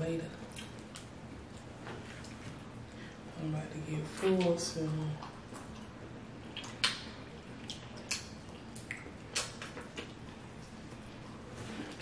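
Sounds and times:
wet chewing smacks and squishes: 0.4s - 2.8s, 5.2s - 12.0s.

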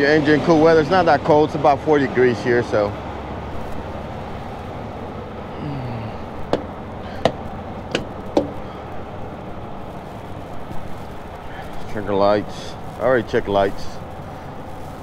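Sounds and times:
diesel engine idling: 0.0s - 15.0s
wooden stick tapping tires: 6.5s - 8.6s.

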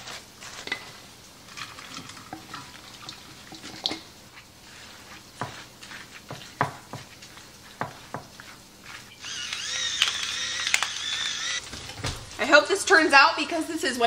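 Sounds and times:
wooden spoon scraping a bowl: 4.3s - 9.2s.

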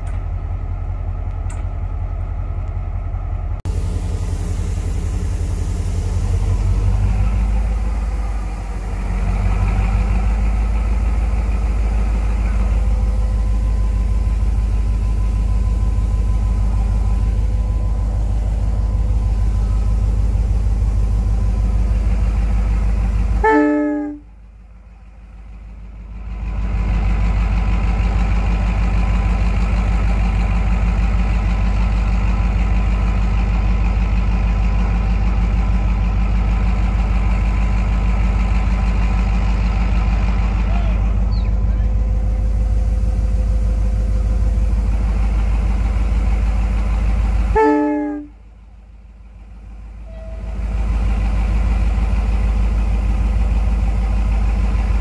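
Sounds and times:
diesel locomotive engine running: 0.0s - 55.0s
heavy rain hissing: 3.7s - 9.4s.

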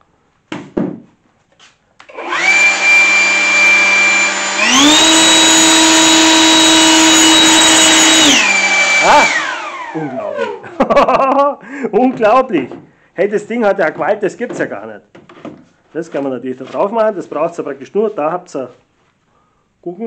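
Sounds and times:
leaf blower whining: 2.0s - 10.7s.

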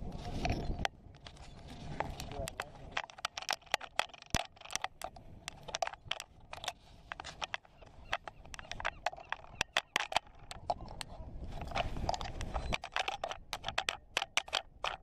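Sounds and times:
sharp clicks and taps: 2.1s - 15.0s.

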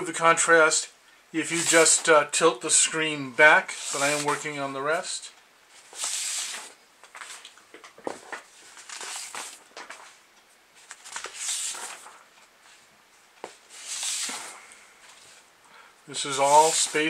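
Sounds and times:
paper pages turning: 1.5s - 2.0s, 3.7s - 4.5s, 5.8s - 10.1s, 10.8s - 12.2s, 13.7s - 15.4s, 16.2s - 17.0s
paper crackling and clicking: 8.2s - 10.1s, 10.8s - 12.2s, 13.8s - 14.6s.

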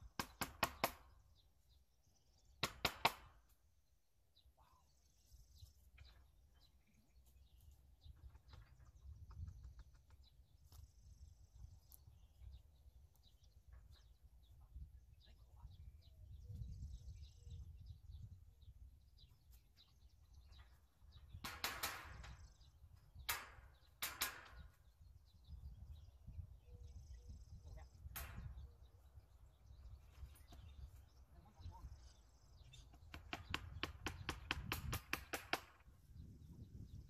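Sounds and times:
faint bird chirps: 4.3s - 21.5s, 24.6s - 33.4s
wind rumble on microphone: 7.9s - 23.8s, 24.5s - 37.0s
sharp knocks and clatters: 23.2s - 24.8s.

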